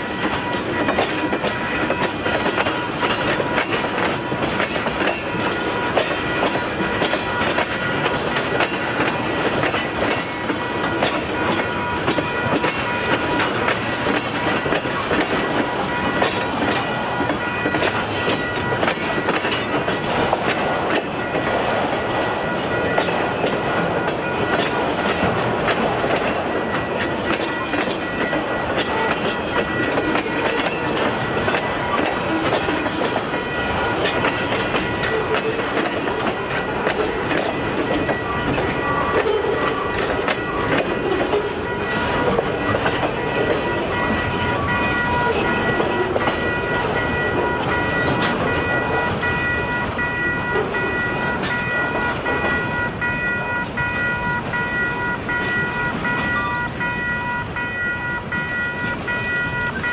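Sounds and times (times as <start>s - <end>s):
train wheels clicking over rail joints: 0.0s - 59.9s
high-pitched ringing tones: 43.1s - 59.9s.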